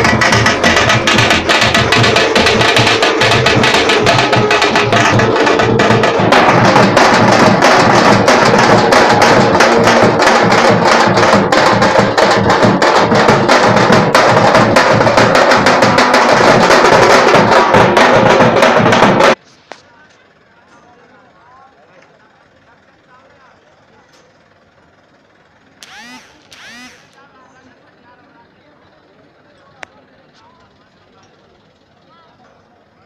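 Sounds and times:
dhol drums beaten with sticks: 0.0s - 19.4s.

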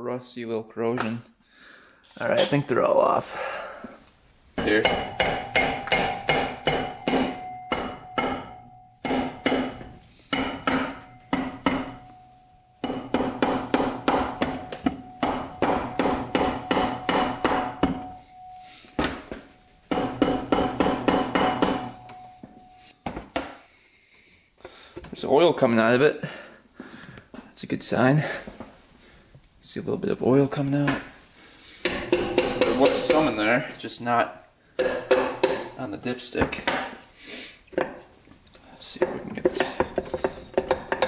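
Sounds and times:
mallet knocking on metal: 4.6s - 12.0s, 12.8s - 18.2s, 19.9s - 22.3s
ringing metallic note: 18.0s - 19.7s.

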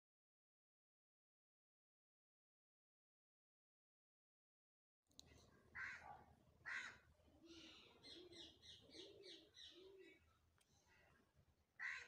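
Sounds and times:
harsh bird calls: 5.8s - 10.2s, 11.8s - 12.0s.

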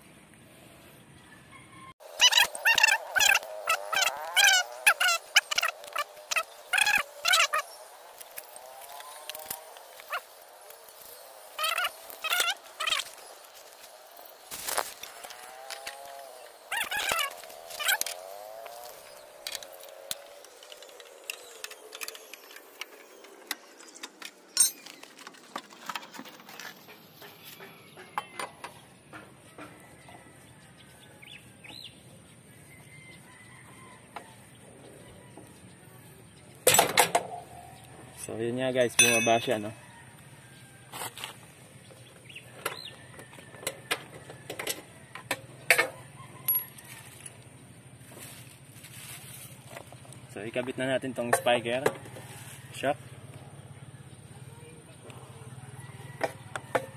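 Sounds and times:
metal clank: 39.0s - 39.6s.

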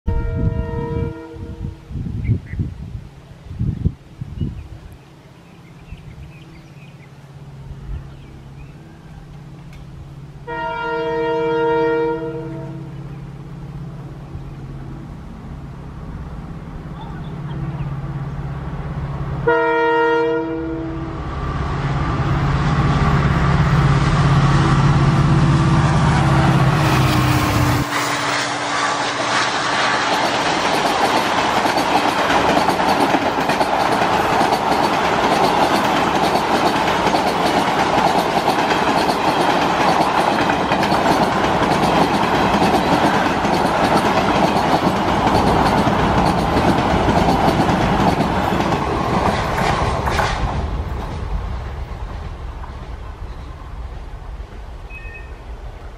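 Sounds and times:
train horn blast: 0.1s - 2.0s, 10.4s - 13.1s, 19.4s - 21.3s, 24.5s - 30.1s
diesel locomotive engine drone: 0.1s - 55.9s
train wheels clacking over rail joints: 29.8s - 51.2s.

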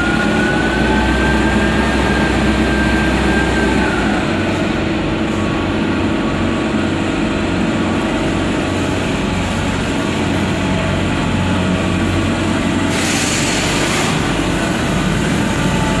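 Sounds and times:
forklift engine running: 0.0s - 16.0s
hiss: 12.8s - 14.4s.

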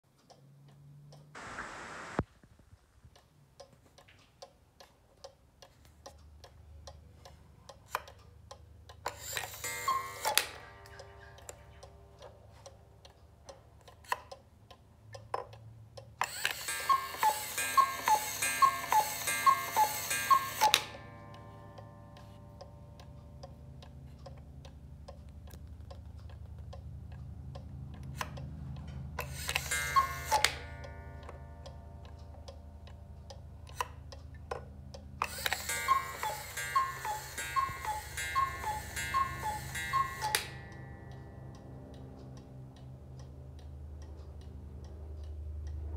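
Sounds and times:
clock ticking fast: 3.1s - 45.9s
two-note cuckoo call: 16.7s - 22.1s, 29.5s - 30.8s, 35.3s - 41.3s.

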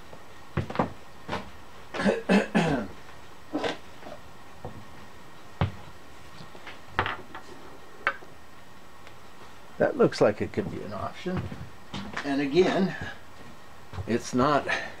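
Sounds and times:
man coughing: 2.0s - 3.0s.

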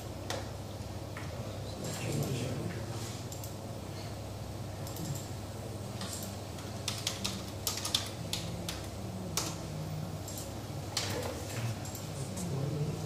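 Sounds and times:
low room hum: 0.0s - 13.0s
typing on a computer keyboard: 6.0s - 9.6s, 10.2s - 12.2s.

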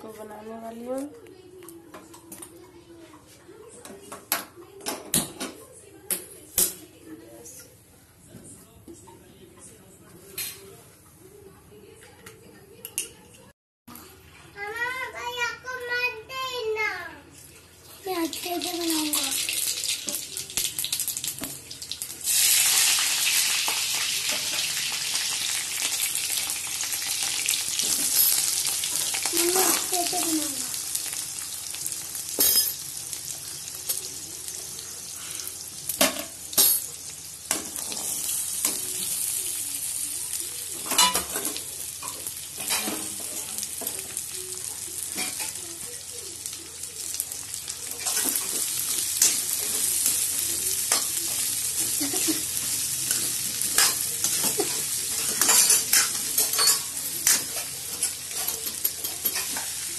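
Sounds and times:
vegetables sizzling in oil: 17.8s - 59.9s.

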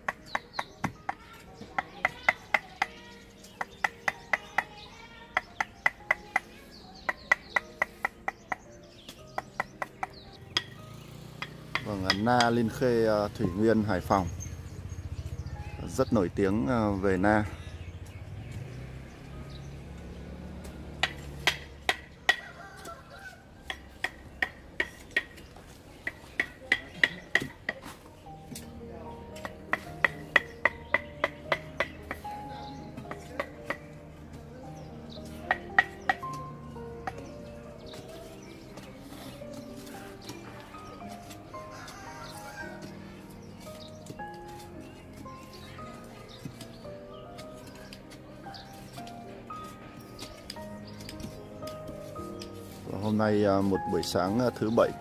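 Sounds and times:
sharp metallic taps ringing: 9.3s - 12.7s, 20.9s - 22.5s.

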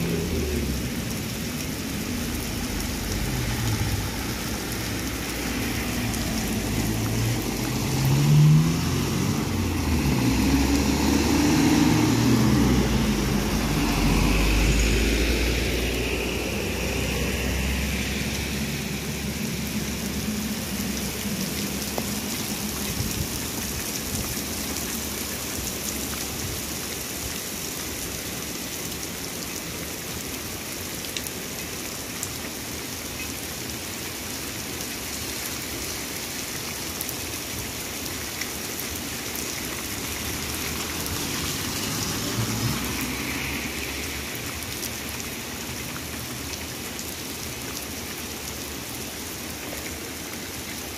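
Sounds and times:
heavy rain on road: 0.0s - 50.9s
vehicle passing: 1.9s - 22.7s, 39.8s - 44.7s.

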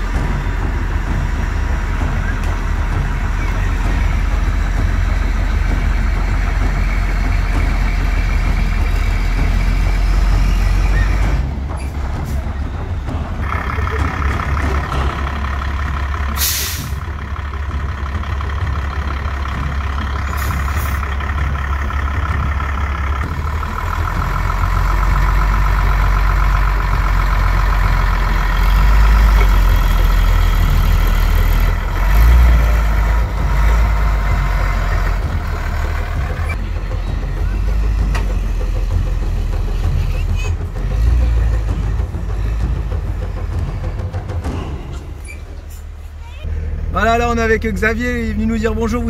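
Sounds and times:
truck engine rumbling under load: 0.0s - 49.0s
short hiss of air: 16.4s - 17.0s.

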